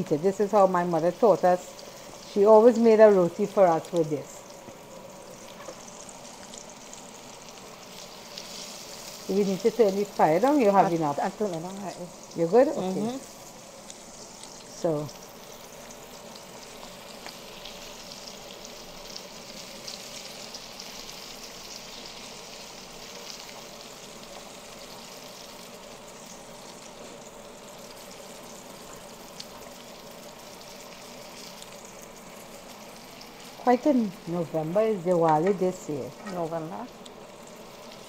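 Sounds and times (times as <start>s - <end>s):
eggplant sizzling in a pan: 0.0s - 38.0s
light crackles: 3.3s - 34.3s, 35.0s - 38.0s.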